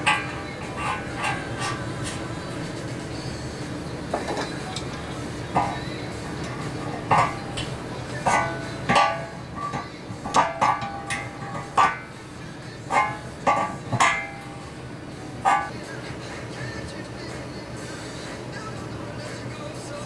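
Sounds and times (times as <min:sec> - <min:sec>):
metal pipe fittings clinking: 0:00.0 - 0:15.8
low steady hum: 0:00.0 - 0:20.0.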